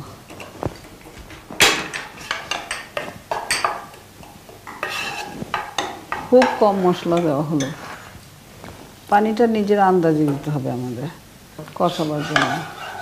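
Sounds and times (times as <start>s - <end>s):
utensils clattering against pot: 0.3s - 7.8s, 12.0s - 13.0s.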